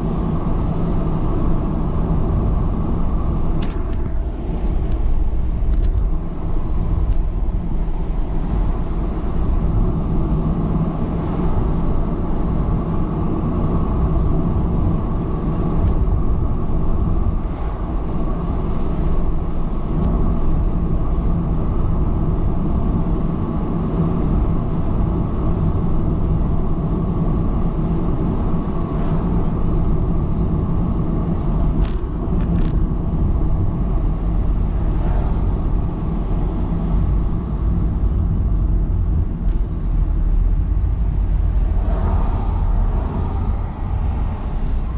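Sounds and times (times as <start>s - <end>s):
car driving interior rumble: 0.0s - 44.9s.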